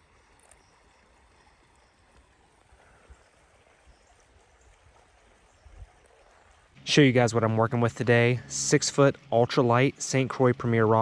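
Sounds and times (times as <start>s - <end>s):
creek trickling: 0.0s - 11.0s.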